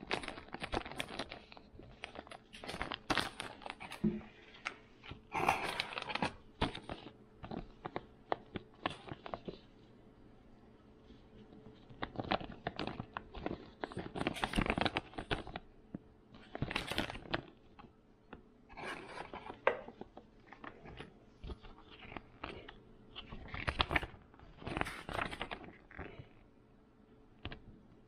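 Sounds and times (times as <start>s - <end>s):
packaging crinkling and tearing: 0.0s - 4.1s, 5.0s - 9.7s, 11.8s - 15.7s, 16.3s - 17.9s, 18.7s - 26.3s.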